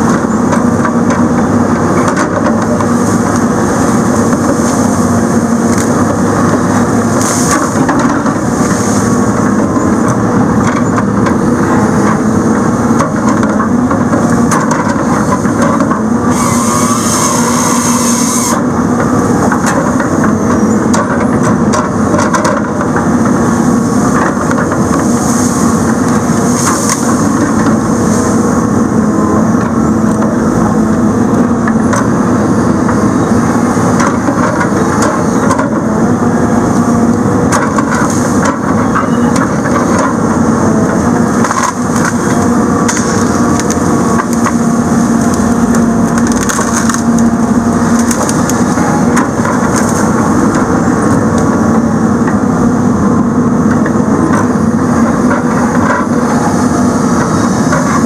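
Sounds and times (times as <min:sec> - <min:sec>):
logging machine engine and hydraulics: 0:00.0 - 0:58.0
saw cutting logs: 0:16.2 - 0:18.7
loud hydraulic hiss: 0:16.3 - 0:18.6.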